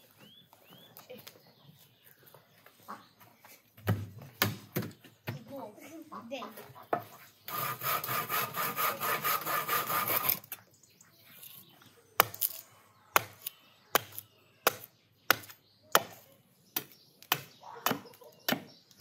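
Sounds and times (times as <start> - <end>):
hand saw cutting wood: 7.4 - 10.5
hatchet chopping wood: 12.2 - 12.6, 13.2 - 16.2, 16.8 - 19.0.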